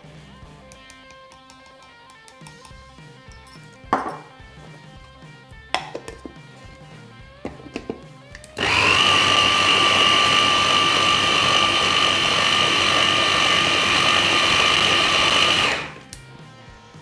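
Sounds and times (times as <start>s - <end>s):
electric chopper motor whining: 8.6s - 16.1s.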